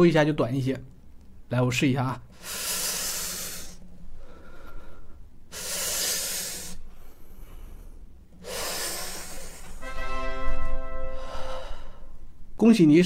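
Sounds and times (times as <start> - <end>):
man breathing hissing puffs: 2.3 - 9.8.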